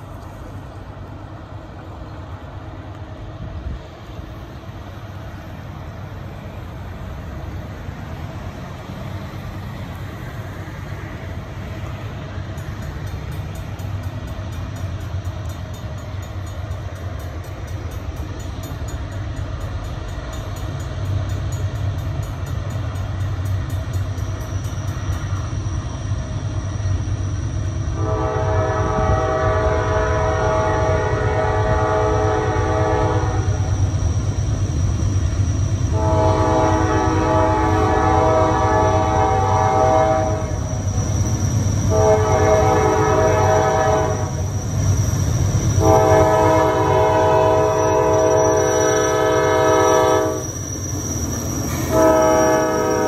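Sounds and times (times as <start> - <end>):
freight train rumble: 0.0 - 53.0
train horn chord: 27.9 - 33.6, 36.0 - 40.6, 41.9 - 44.4, 45.8 - 50.4, 51.9 - 53.0.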